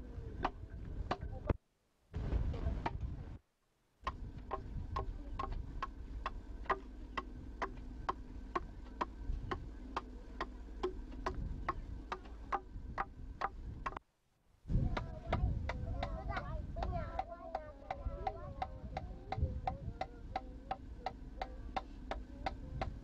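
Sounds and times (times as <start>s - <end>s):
steady low hum: 0.0s - 23.0s
adze chopping wood: 4.0s - 14.0s.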